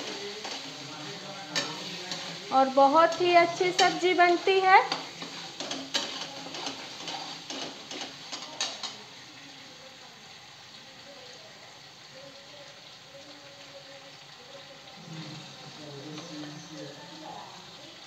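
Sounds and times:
metal spatula scraping pan: 0.0 - 9.0
food sizzling in a pan: 0.0 - 18.0.

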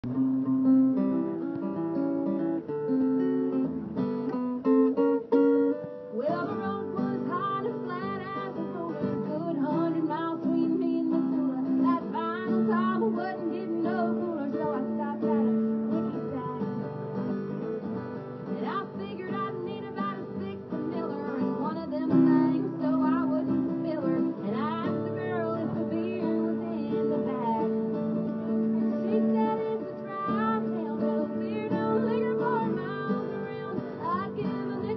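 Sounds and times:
acoustic guitar strummed: 0.0 - 34.9
person singing: 6.0 - 17.0, 18.4 - 34.9.

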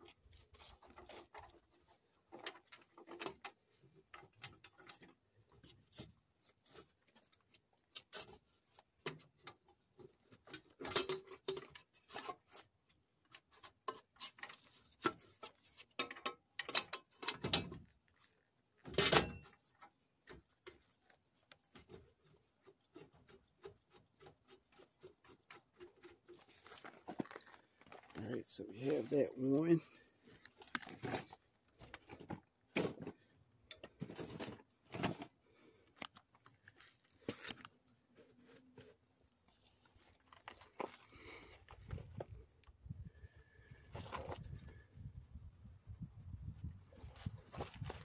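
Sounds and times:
metal parts clicking and scraping: 13.8 - 17.9.

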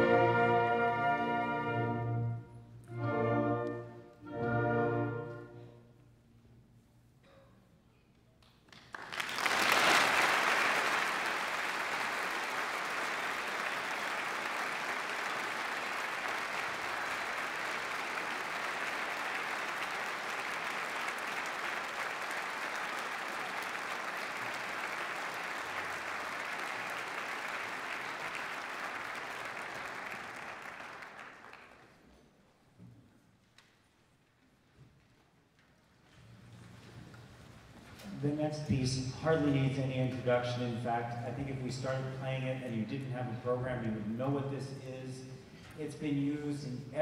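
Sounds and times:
audience applauding: 8.5 - 32.0.

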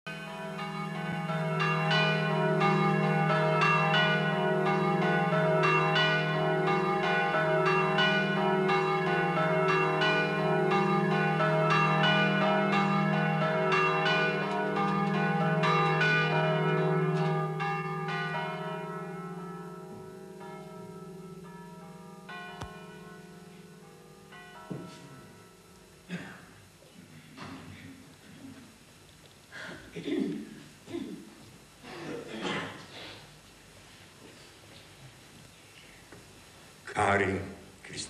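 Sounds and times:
church bells pealing: 0.1 - 26.2.

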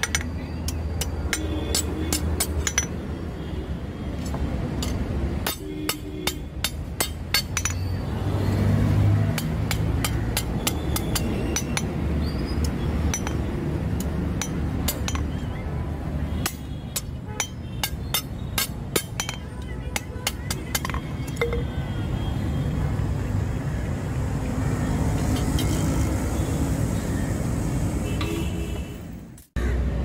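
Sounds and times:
hammer striking metal on anvil: 4.8 - 7.8.

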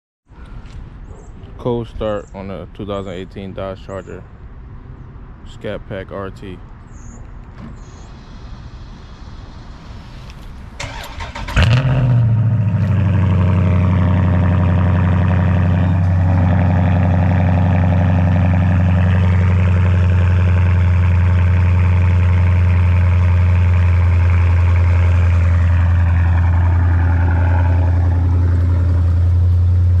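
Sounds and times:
car engine revving and idling: 7.8 - 30.0
starter motor cranking: 10.8 - 11.9.

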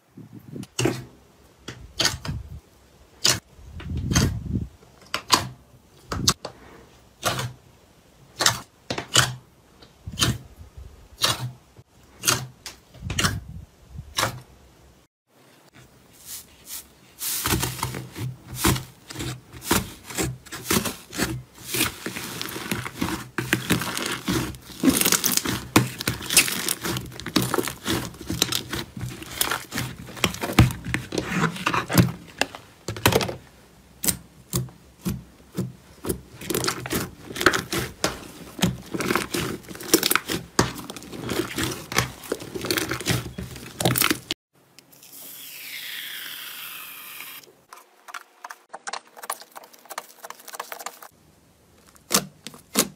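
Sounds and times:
slime crackling and tearing: 18.6 - 32.5, 36.0 - 44.3, 51.8 - 52.9.

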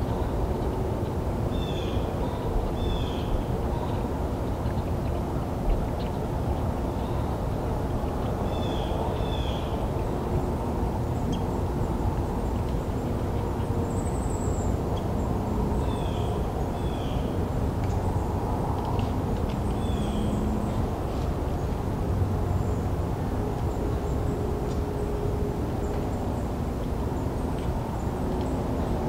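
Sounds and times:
small birds chirping: 19.5 - 20.8.

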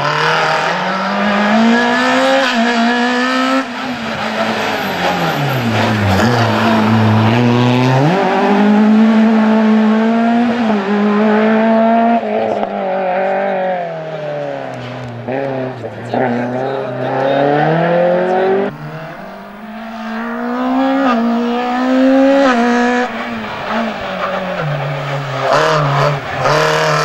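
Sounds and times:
car engine revving hard: 0.0 - 27.0.

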